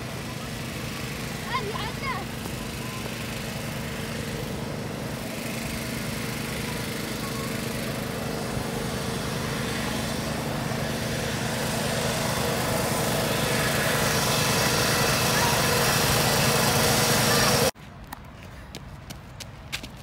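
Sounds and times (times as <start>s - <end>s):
air blower motor humming: 0.0s - 17.8s.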